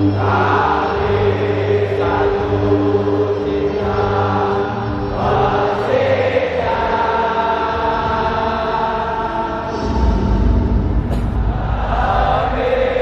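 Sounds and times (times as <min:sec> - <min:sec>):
stadium crowd singing: 0:00.0 - 0:13.0.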